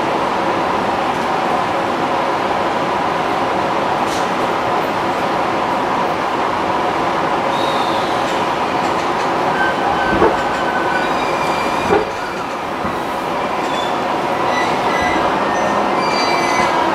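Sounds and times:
train interior rumble: 0.0 - 16.9
wheels squealing: 8.9 - 16.8
short knocks: 10.1 - 10.8, 11.7 - 13.2.

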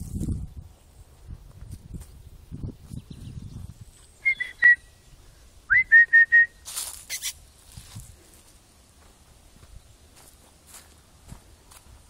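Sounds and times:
person whistling short notes: 4.2 - 4.9, 5.7 - 7.3
rustling: 6.6 - 8.6.

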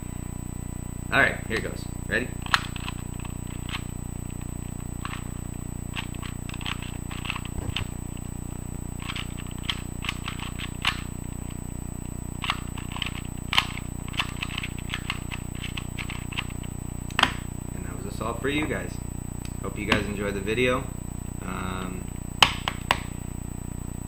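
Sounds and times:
low hum: 0.0 - 24.0
puzzle cube plastic clicks: 2.4 - 3.8, 5.9 - 7.9, 9.0 - 11.1, 12.4 - 16.5.

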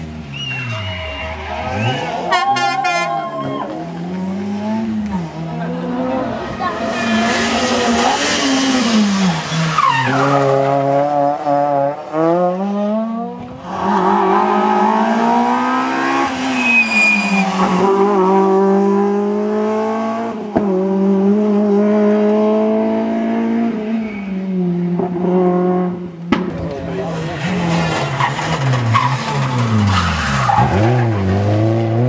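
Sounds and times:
rally car engines revving: 0.0 - 32.0.

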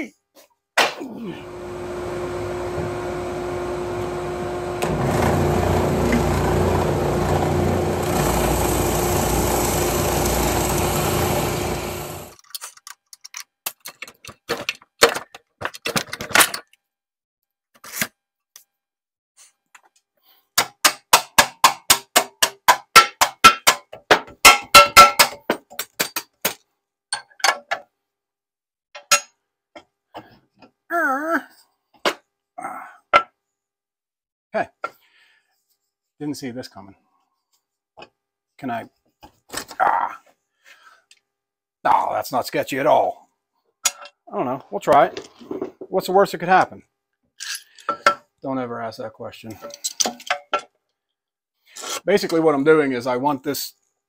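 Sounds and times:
power tool motor humming: 1.4 - 12.4.

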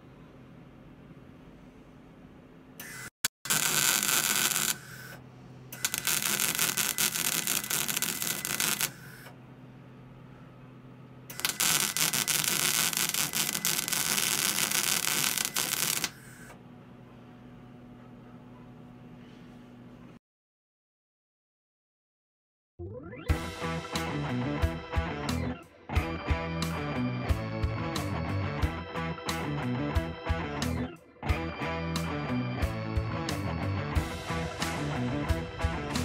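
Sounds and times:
welder arc crackling: 2.8 - 5.2, 5.8 - 9.2, 11.3 - 16.4
welding machine hum: 2.8 - 9.3, 11.3 - 16.5.

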